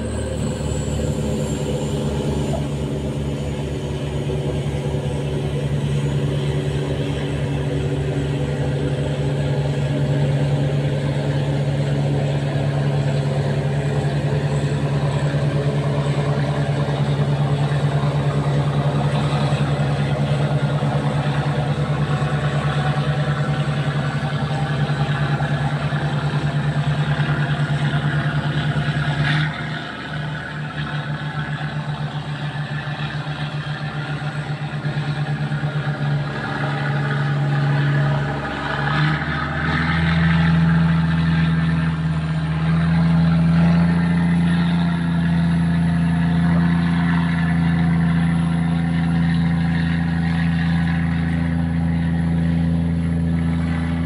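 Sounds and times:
boat diesel engine running: 0.0s - 54.0s.

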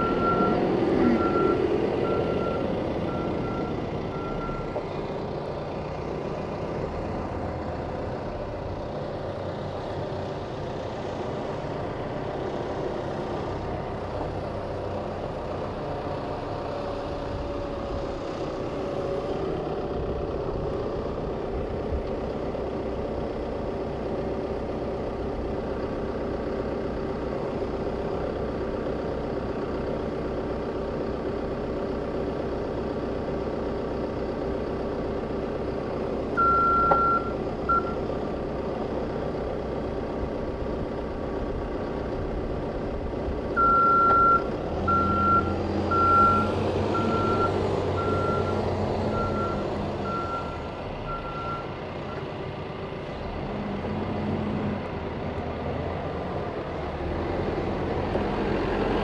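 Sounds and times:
reversing alarm beeps: 0.0s - 4.8s, 36.4s - 38.0s, 43.6s - 51.7s
diesel engine running: 0.0s - 59.0s.

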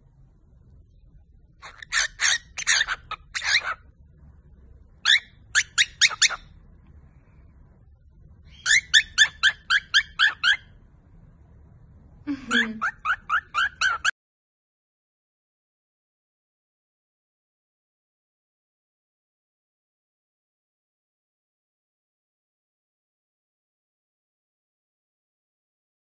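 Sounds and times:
cockatiel chirping: 1.6s - 3.9s, 5.0s - 6.6s, 8.5s - 10.8s, 12.5s - 14.1s.

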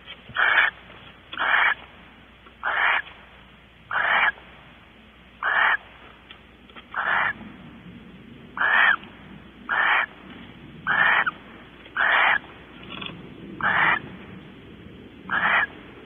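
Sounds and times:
owl hissing calls: 0.4s - 1.9s, 2.6s - 3.2s, 3.9s - 4.4s, 5.4s - 6.0s, 6.9s - 7.4s, 8.6s - 9.1s, 9.7s - 10.2s, 10.8s - 14.1s, 15.3s - 15.8s.

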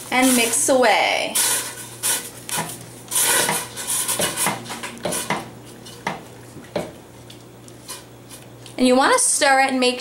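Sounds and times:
wooden spoon scraping metal pot: 0.1s - 6.2s.

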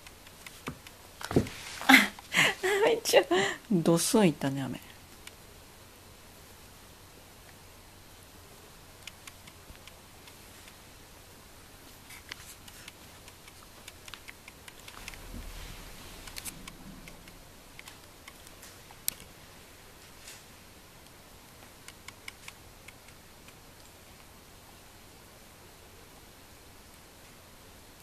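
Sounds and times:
fabric rustling: 1.2s - 2.0s.

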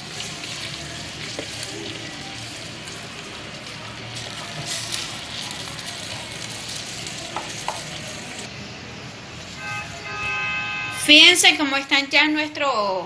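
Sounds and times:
caramel sizzling hiss: 0.0s - 10.2s.

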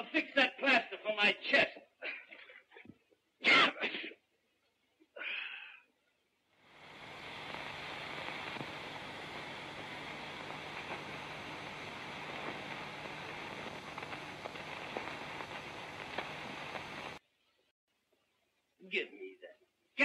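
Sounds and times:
film soundtrack hiss: 3.3s - 20.0s
man sneezing: 3.4s - 4.2s.

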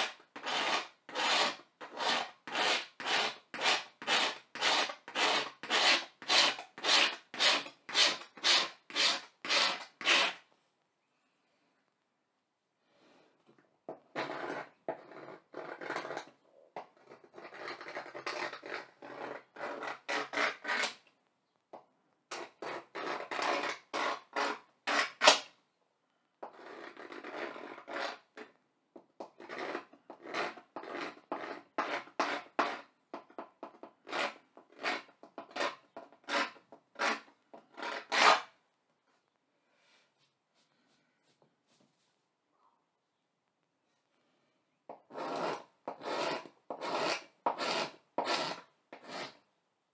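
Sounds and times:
tool scratching a blackboard: 0.0s - 10.5s, 13.9s - 21.1s, 22.3s - 25.5s, 26.4s - 28.6s, 29.2s - 38.6s, 45.0s - 49.4s.

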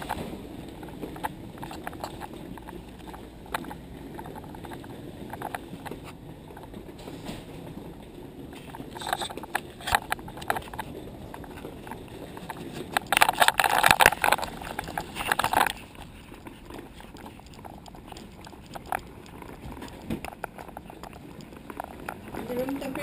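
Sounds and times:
clothing and bag rustling: 0.0s - 23.0s.

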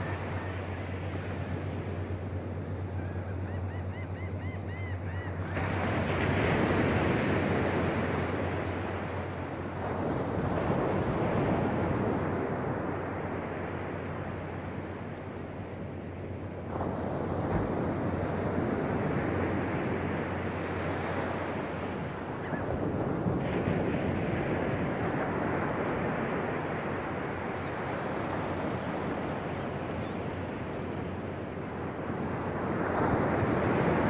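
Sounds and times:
faint bird calls: 2.6s - 5.6s, 29.9s - 30.3s.

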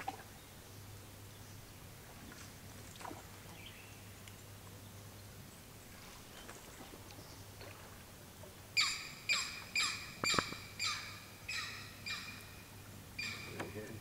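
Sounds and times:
bird squawking harshly: 8.8s - 12.5s, 13.2s - 13.8s.

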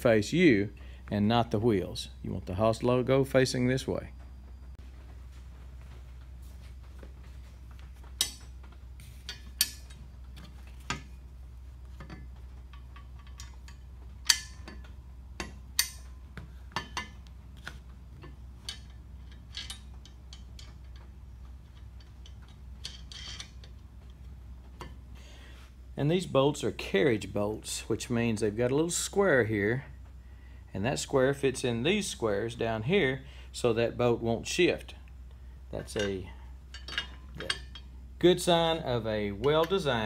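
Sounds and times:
bolts and nuts clinking on steel: 6.2s - 25.2s, 31.0s - 40.0s.

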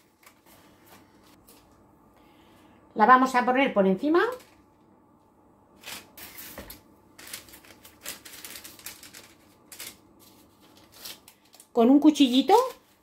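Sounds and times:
baking paper rustling and crinkling: 0.0s - 1.7s, 5.7s - 13.0s.

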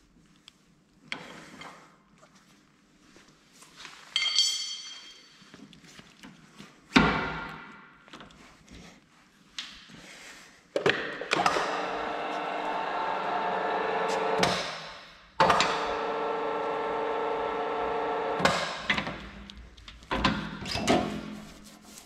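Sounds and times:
pipe expander whining: 11.4s - 14.8s, 15.4s - 19.4s.

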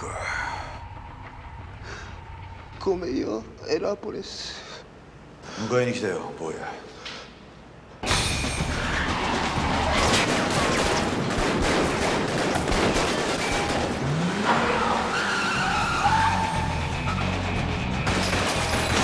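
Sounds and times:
wavering whine: 0.0s - 4.0s
gunshots: 9.4s - 14.0s.

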